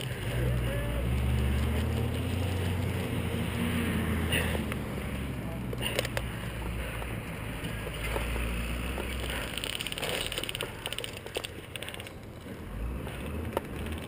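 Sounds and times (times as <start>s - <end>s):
footsteps on dirt trail: 0.0s - 14.0s
gear clicks: 4.3s - 14.0s
rattling run of clicks: 5.7s - 14.0s.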